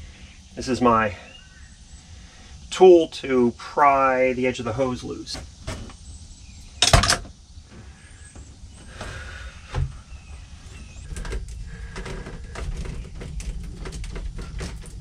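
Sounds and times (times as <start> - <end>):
tool knocks and clicks: 6.8 - 7.3
dull thump: 6.9 - 10.0.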